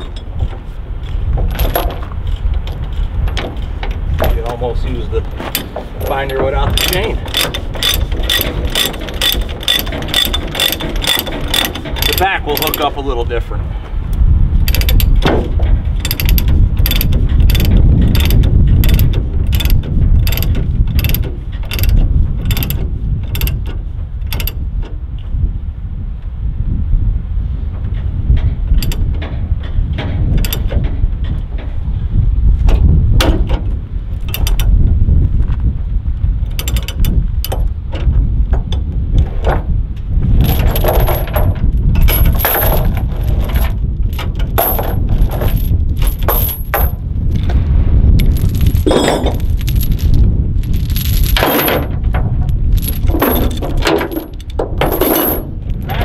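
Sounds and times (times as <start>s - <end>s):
steel chain clanking: 0.0s - 13.1s, 14.6s - 24.6s, 28.7s - 31.8s, 33.2s - 34.8s, 36.4s - 38.2s, 40.4s - 47.2s, 48.1s - 56.0s
steady low rumble: 0.0s - 56.0s.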